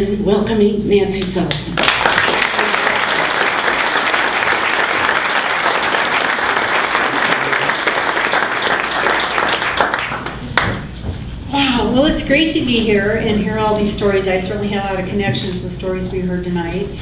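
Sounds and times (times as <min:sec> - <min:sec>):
audience applauding: 0:01.8 - 0:10.8.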